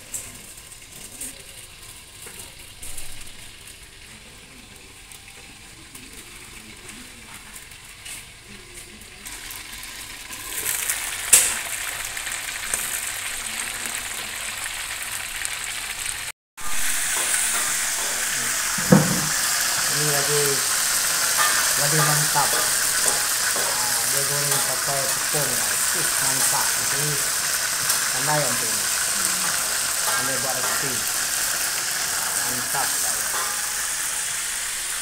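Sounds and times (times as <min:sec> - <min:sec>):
oil sizzling in a wok: 0:00.0 - 0:35.0
metal clank: 0:17.2 - 0:19.5, 0:22.5 - 0:23.8, 0:33.2 - 0:34.3
metal wok lid clink: 0:21.3 - 0:23.8, 0:33.1 - 0:34.3.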